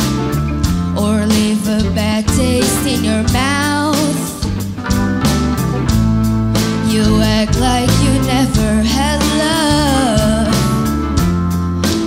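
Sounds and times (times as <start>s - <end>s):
electric guitar: 0.0s - 12.0s
keyboard chords: 0.0s - 12.0s
woman singing: 1.0s - 4.5s, 6.8s - 10.9s.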